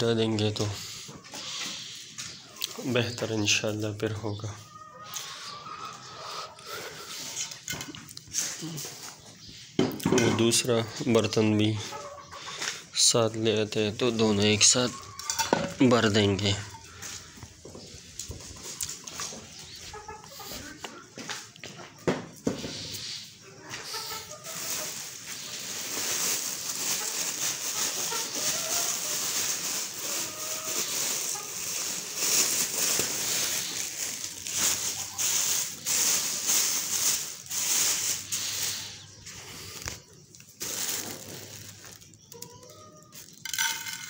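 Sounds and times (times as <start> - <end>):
hens clucking faintly: 0.2 - 7.7, 10.4 - 13.0, 14.0 - 43.4
plastic sack rustling: 23.8 - 42.4.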